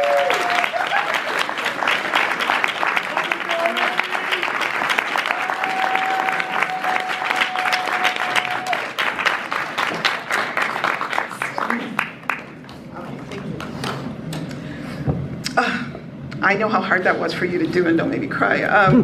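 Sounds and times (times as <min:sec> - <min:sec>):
audience applauding: 0:00.0 - 0:14.4.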